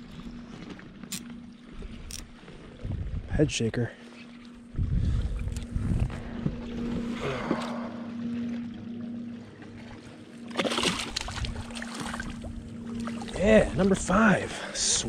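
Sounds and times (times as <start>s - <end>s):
steady low hum: 0.0s - 15.0s
wind on microphone: 1.8s - 3.5s, 4.6s - 8.0s, 11.1s - 14.1s
fish splashing at surface: 10.5s - 12.2s.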